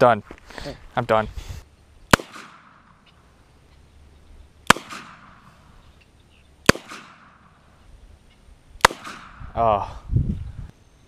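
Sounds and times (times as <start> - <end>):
handgun shots with echo: 2.1 - 3.0, 4.7 - 5.5, 6.6 - 7.5, 8.8 - 9.4.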